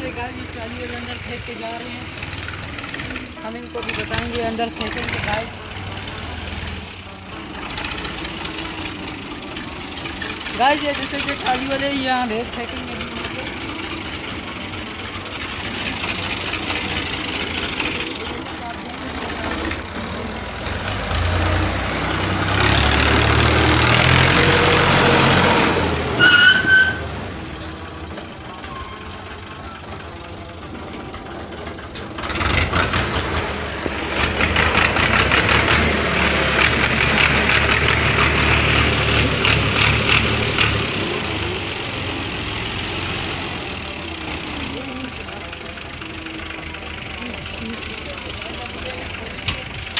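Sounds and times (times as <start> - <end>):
tractor diesel engine revving: 0.0 - 49.9
brief high squeal: 26.2 - 27.1.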